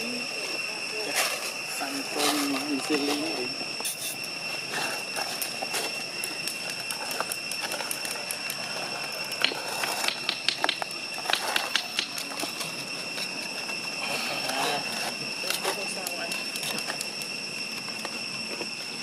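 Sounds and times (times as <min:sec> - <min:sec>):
steady high-pitched whine: 0:00.0 - 0:19.0
sharp clicks and crackles: 0:05.2 - 0:13.3, 0:15.4 - 0:19.0.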